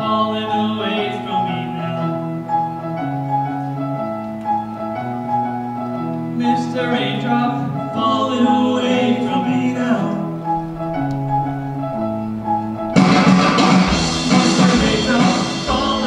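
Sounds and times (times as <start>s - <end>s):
lead vocal singing: 0.0s - 2.2s, 6.4s - 11.9s, 12.9s - 16.0s
piano chords: 0.0s - 16.0s
electric guitars: 8.6s - 16.0s.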